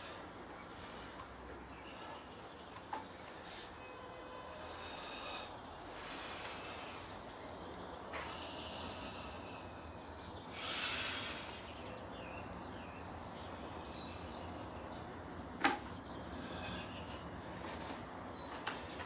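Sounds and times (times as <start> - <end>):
faint chirps: 0.0 - 14.8
faint background noise: 0.0 - 19.0.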